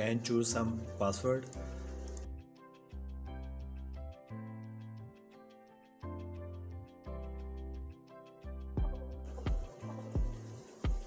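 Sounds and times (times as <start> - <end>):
background music with chords and bass: 0.0 - 11.0
low drum beat: 8.8 - 11.0.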